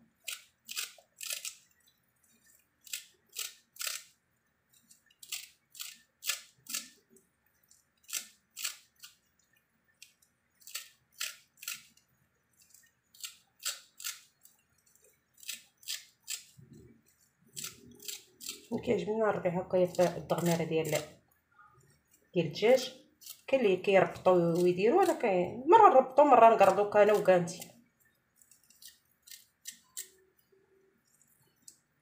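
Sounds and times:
scissors snipping herbs: 0.2 - 1.6, 2.8 - 4.1, 4.8 - 7.0, 8.0 - 9.2, 10.0 - 12.0, 12.7 - 14.3, 15.4 - 16.5, 17.5 - 18.7, 19.8 - 21.1, 22.8 - 25.3, 26.6 - 27.8, 28.4 - 30.2.

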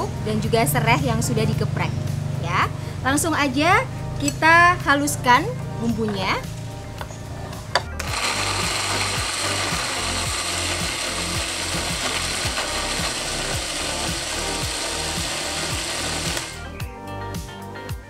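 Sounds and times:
electric blender grinding: 8.0 - 16.7.

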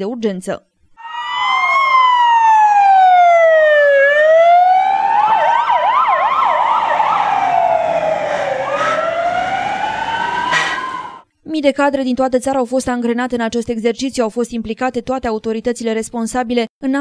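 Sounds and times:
siren wailing: 1.0 - 11.3
siren yelping: 1.0 - 11.3.

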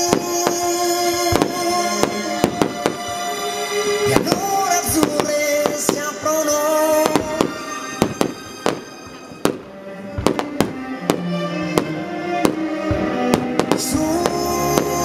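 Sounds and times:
music with long held notes: 0.0 - 15.0
firework shells bursting: 7.0 - 15.0.

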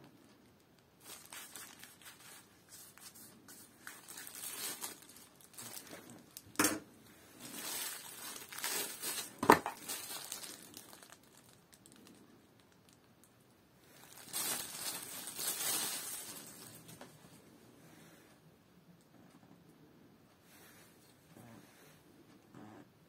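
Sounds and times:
plastic wrapping crinkling: 0.4 - 6.6, 7.4 - 13.3, 13.9 - 17.4
fabric sheath rustling: 7.4 - 11.2.

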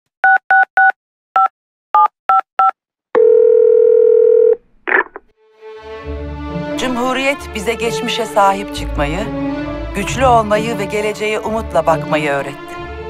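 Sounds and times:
telephone keypad touch-tones: 0.2 - 4.6
telephone ringing tone: 2.0 - 5.0.

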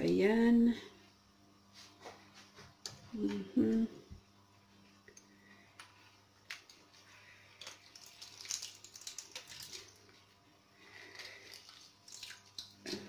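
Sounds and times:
juice dripping into glass: 7.6 - 10.1, 11.1 - 12.9.

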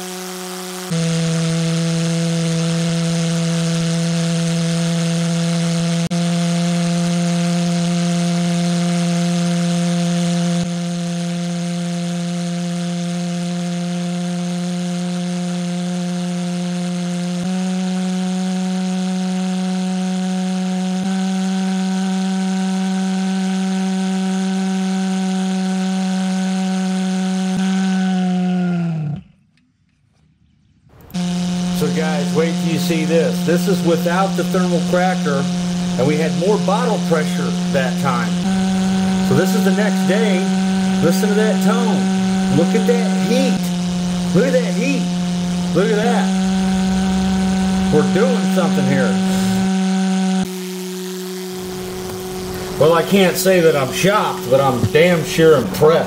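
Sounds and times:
pulse jet engine droning: 0.0 - 28.5, 30.9 - 56.0.

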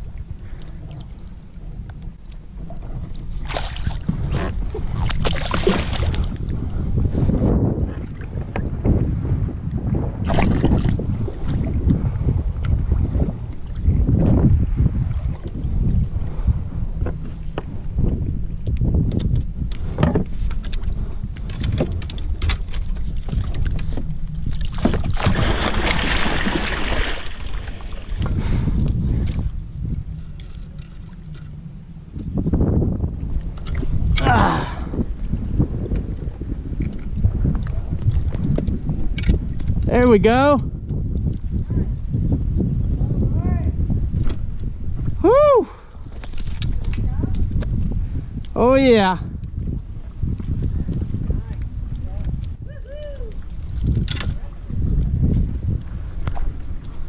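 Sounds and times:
wind on microphone: 0.0 - 57.0
fish thrashing in water: 3.4 - 6.4, 23.2 - 28.3
fish splashing in water: 24.6 - 28.1.

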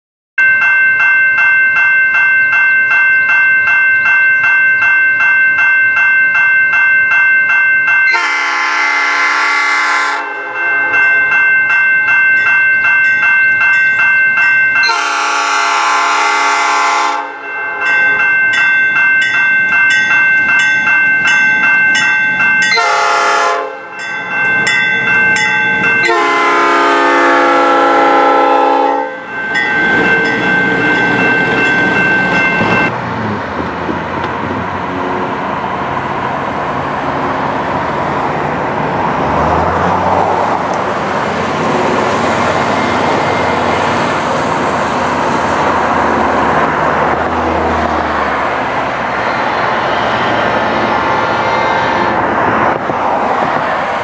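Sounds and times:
crossing bell dinging: 0.4 - 33.0, 39.0 - 52.6
train horn blasts: 8.1 - 11.0, 14.8 - 17.9, 22.6 - 23.9, 26.0 - 31.2.

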